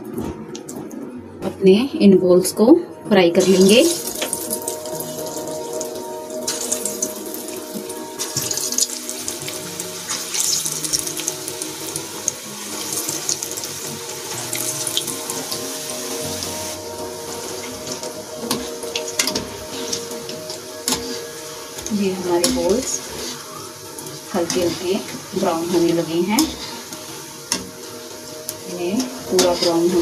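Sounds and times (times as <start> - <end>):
food deep-frying in oil: 3.4 - 30.0.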